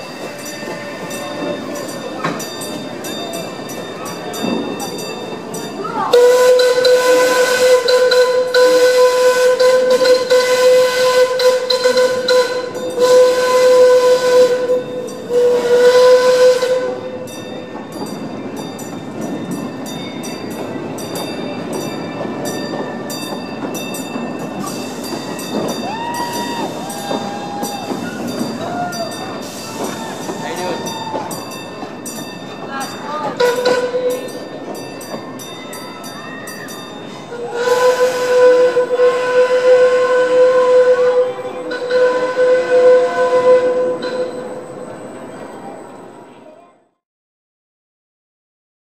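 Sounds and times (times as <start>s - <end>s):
crossing bell ringing: 0.0s - 46.6s
approaching train noise: 0.0s - 46.9s
steam whistle blasts: 6.1s - 17.3s, 33.4s - 34.3s, 37.3s - 44.6s.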